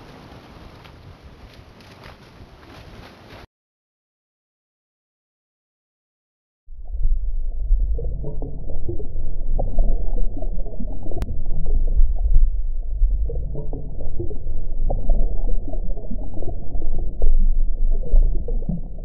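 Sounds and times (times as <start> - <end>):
underwater rumble and bubbling: 6.7 - 19.0.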